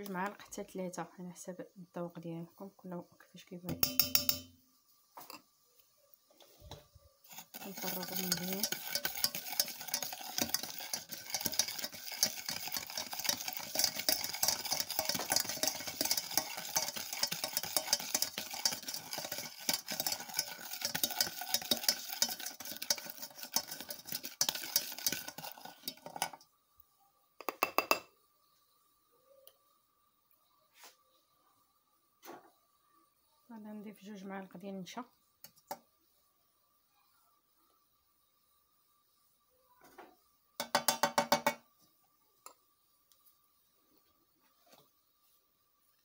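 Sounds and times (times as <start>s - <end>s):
whisk clicking against bowl: 3.7s - 4.5s, 7.3s - 26.4s.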